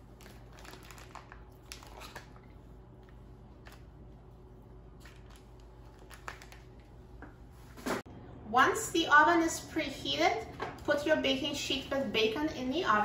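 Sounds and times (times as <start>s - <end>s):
plastic package rustling: 0.0s - 2.7s, 5.0s - 7.0s
low steady hum: 0.0s - 13.0s.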